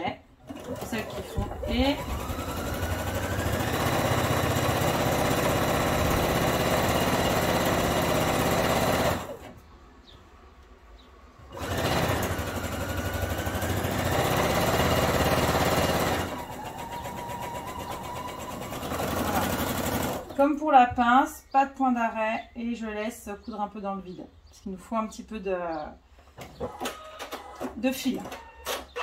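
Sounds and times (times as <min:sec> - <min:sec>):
sewing machine stitching: 0:00.4 - 0:09.5, 0:11.5 - 0:20.4.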